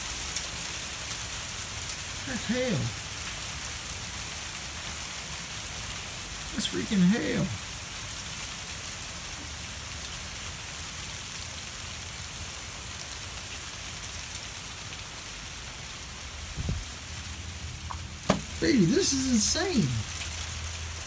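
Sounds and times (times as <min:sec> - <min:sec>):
hail falling: 0:00.0 - 0:21.0.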